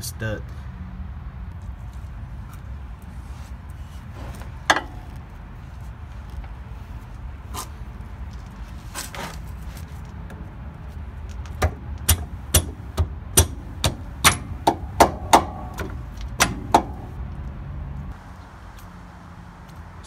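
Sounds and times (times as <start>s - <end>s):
metal-on-metal strikes: 11.6s - 17.1s.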